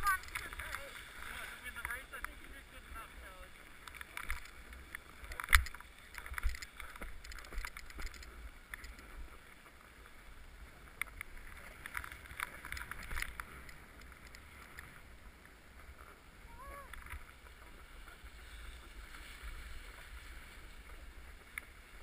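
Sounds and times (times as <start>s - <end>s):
small clicks: 0.0s - 0.8s, 3.8s - 9.2s, 11.0s - 15.0s.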